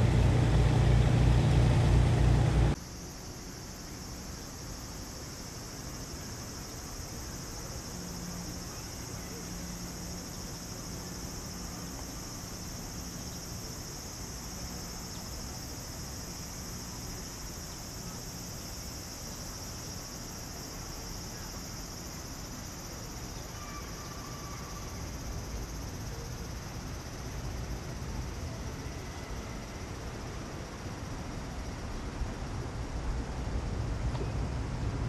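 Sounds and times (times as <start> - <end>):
low background rumble: 0.0 - 2.8
insects droning: 0.0 - 35.0.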